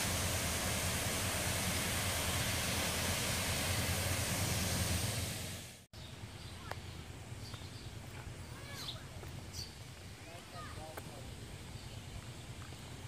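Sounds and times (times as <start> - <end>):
water rushing over spillway: 0.0 - 5.9.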